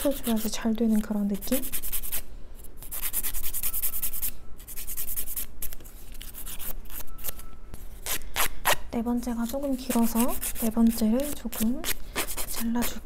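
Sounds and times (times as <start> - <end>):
nail file filing a fingernail: 0.0 - 0.6, 1.4 - 2.2, 2.8 - 7.1, 9.9 - 13.0.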